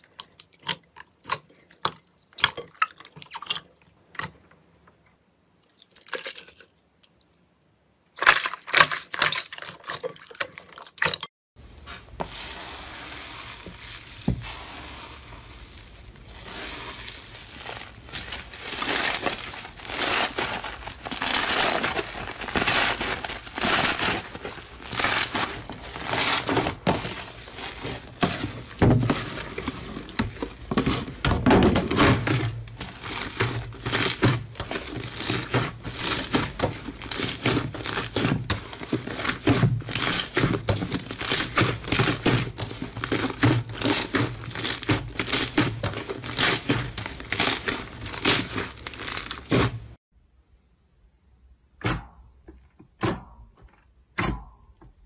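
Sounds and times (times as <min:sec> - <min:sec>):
slime squishing and crackling: 0:12.3 - 0:50.0.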